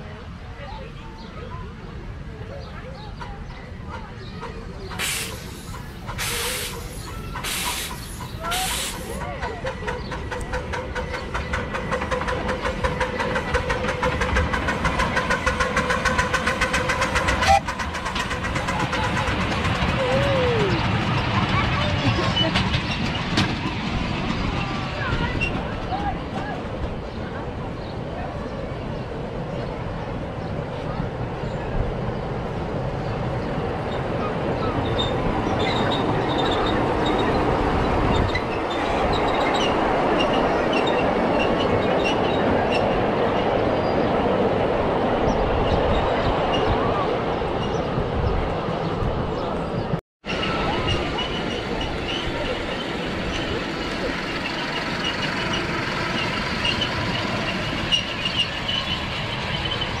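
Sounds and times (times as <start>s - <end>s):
miniature train rumbling: 0.0s - 60.0s
wheel squeals: 33.9s - 43.0s, 50.3s - 60.0s.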